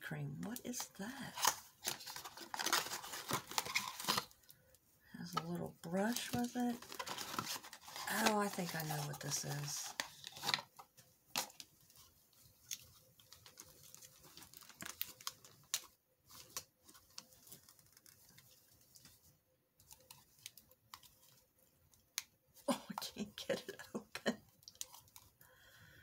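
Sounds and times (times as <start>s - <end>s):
packaging rustling: 1.2s - 4.5s, 6.1s - 22.2s, 24.2s - 25.4s.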